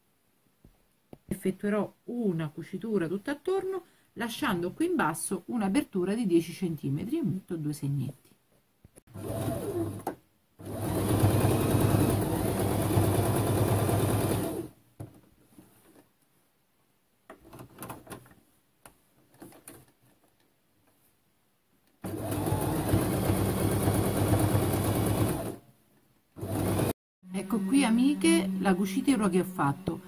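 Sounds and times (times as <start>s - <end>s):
sewing machine stitching: 9.1s - 14.7s, 22.0s - 25.6s, 26.4s - 27.0s.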